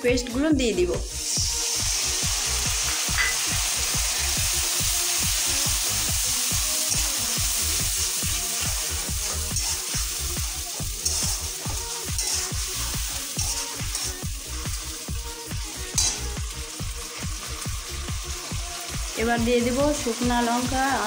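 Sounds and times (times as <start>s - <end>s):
background music with steady beat: 0.0s - 21.0s
tomato paste sizzling in oil: 0.3s - 21.0s
spatula stirring: 6.8s - 20.8s.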